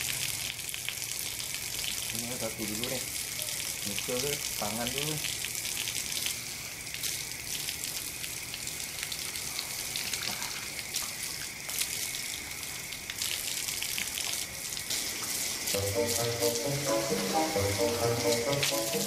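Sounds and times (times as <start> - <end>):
water running from a tap: 0.0 - 19.0.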